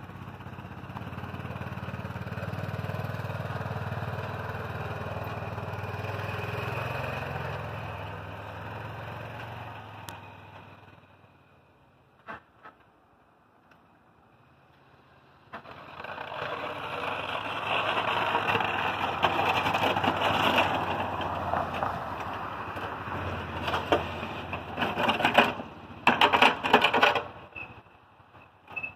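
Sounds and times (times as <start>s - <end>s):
engine hum: 0.0s - 28.9s
plow blade scraping snow: 0.1s - 10.9s, 14.8s - 27.8s.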